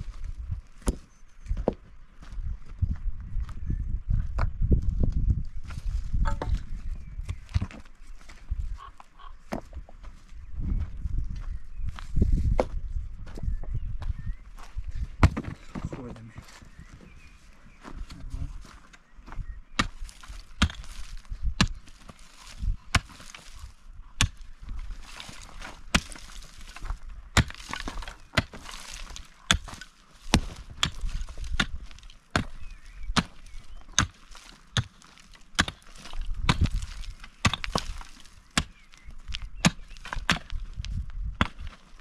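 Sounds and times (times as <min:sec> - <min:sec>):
pickaxe striking stony ground: 0:00.8 - 0:01.8, 0:06.1 - 0:08.4, 0:15.2 - 0:15.9, 0:19.8 - 0:42.0
earth and stones scraping: 0:04.3 - 0:13.5, 0:14.6 - 0:42.0.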